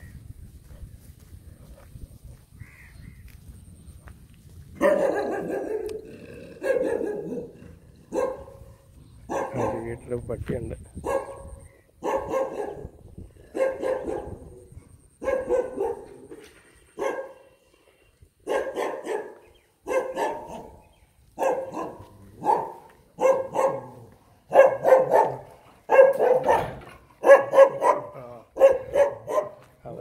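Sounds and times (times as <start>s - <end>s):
dog barking: 4.8s - 8.7s, 9.3s - 9.9s, 11.0s - 12.9s, 13.5s - 14.5s, 15.2s - 16.3s, 17.0s - 17.4s, 18.4s - 20.8s, 21.4s - 29.7s.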